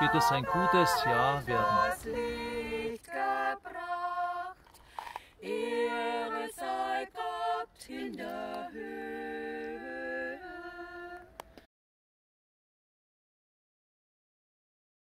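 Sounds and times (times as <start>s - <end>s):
voices singing a cappella: 0.0s - 11.6s.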